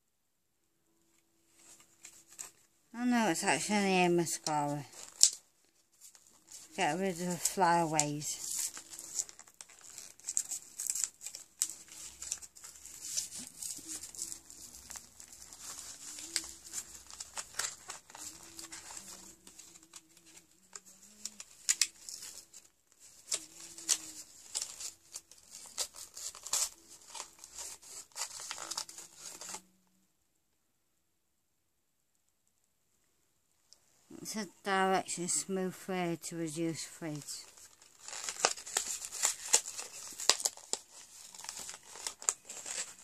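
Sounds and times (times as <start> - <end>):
plastic packaging crinkling: 1.5 - 2.7, 3.6 - 29.7, 37.0 - 43.0
packaging tearing: 4.4 - 29.7, 37.4 - 43.0.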